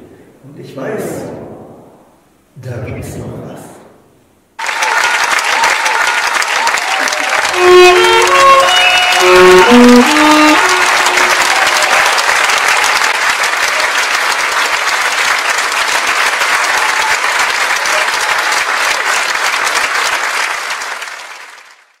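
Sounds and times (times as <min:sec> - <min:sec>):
crowd applauding: 0:04.6 - 0:22.0.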